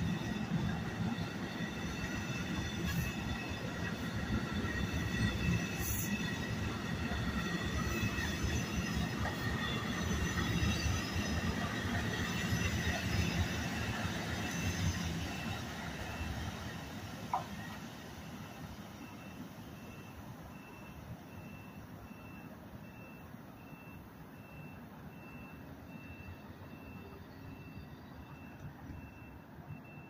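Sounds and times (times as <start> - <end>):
train wheels rumbling on rail: 0.0 - 19.6
faint high-pitched ringing tones: 0.0 - 30.0.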